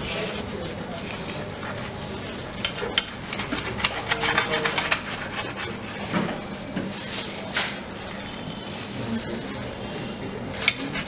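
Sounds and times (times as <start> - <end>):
knife sawing through toasted crust: 3.3 - 6.1, 10.6 - 11.0.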